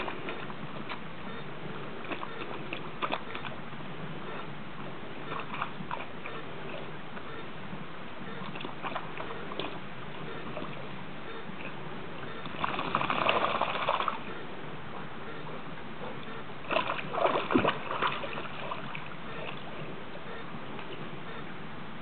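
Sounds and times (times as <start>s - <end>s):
dog splashing in shallow water: 12.5s - 14.2s, 16.7s - 19.6s.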